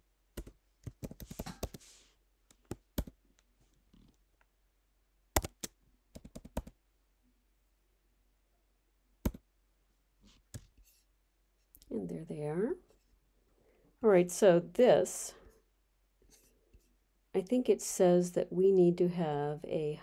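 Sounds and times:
typing on keyboard: 0:00.4 - 0:01.8, 0:02.5 - 0:03.2, 0:05.4 - 0:06.8.

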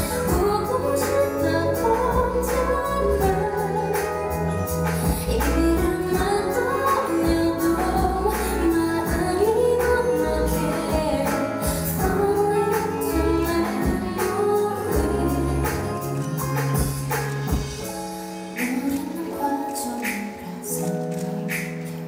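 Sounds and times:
woman singing pop song: 0:00.0 - 0:22.0
accompanying music with bass and beat: 0:10.5 - 0:18.7.

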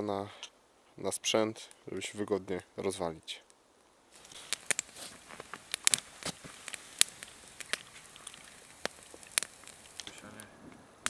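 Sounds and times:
faint fire hiss: 0:00.0 - 0:11.0
campfire crackling and popping: 0:01.5 - 0:11.0.

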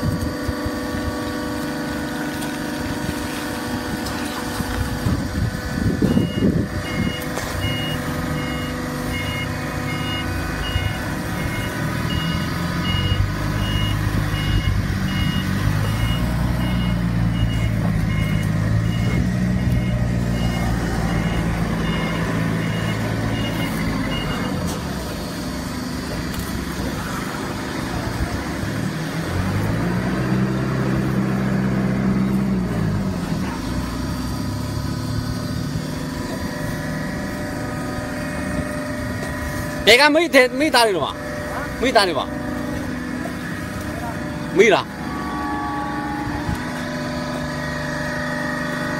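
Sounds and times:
heavy machine engine running: 0:00.0 - 0:48.9
high electronic beeper: 0:06.0 - 0:24.6.

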